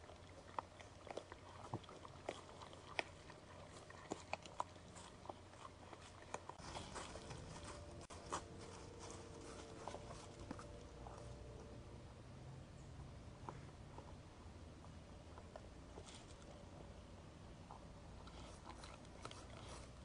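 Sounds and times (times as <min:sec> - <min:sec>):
faint steady hum: 0:00.0 - 0:20.0
deer stepping through dry leaves: 0:06.6 - 0:10.5.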